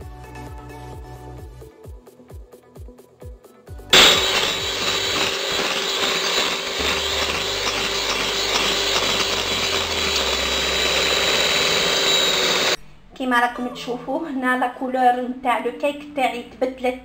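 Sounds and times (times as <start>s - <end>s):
electric hand mixer running: 3.9s - 12.8s
faint music: 12.8s - 17.0s.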